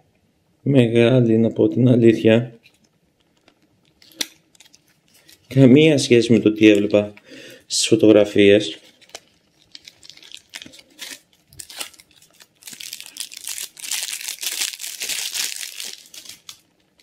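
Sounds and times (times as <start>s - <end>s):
plastic packaging crinkling: 2.6s - 5.7s, 8.6s - 17.0s.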